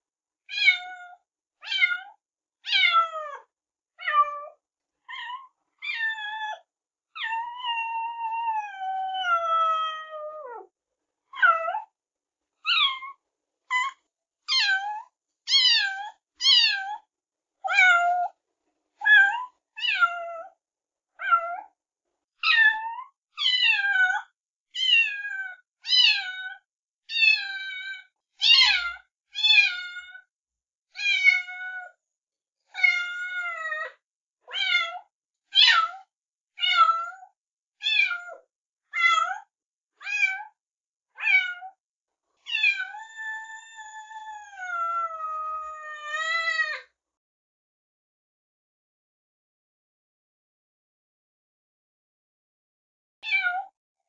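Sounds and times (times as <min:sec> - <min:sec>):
cat meowing: 0:00.5 - 0:06.6, 0:07.2 - 0:10.7, 0:12.7 - 0:17.1, 0:19.0 - 0:20.6, 0:21.2 - 0:21.7, 0:22.4 - 0:30.3, 0:31.0 - 0:31.9, 0:32.7 - 0:33.7, 0:34.5 - 0:36.0, 0:36.6 - 0:38.4, 0:39.0 - 0:40.6, 0:41.2 - 0:41.8, 0:42.5 - 0:46.9, 0:53.2 - 0:53.8.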